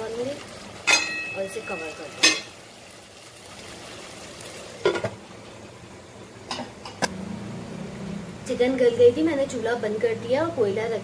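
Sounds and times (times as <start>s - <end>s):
metal pot lid clanking: 0.8s - 2.6s.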